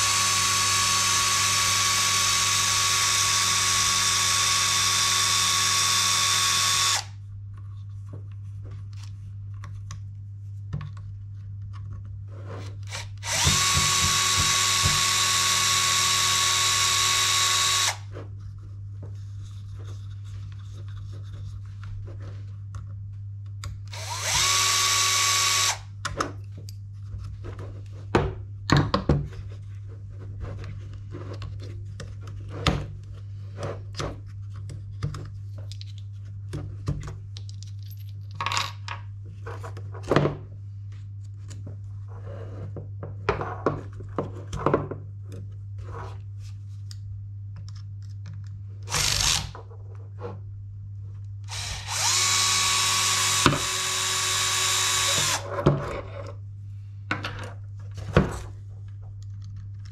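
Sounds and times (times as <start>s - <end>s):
electric screwdriver running: 0.0s - 7.2s, 12.8s - 18.1s, 23.9s - 25.9s, 48.9s - 49.6s, 51.5s - 55.5s
small parts clicking and knocking: 34.6s - 39.0s.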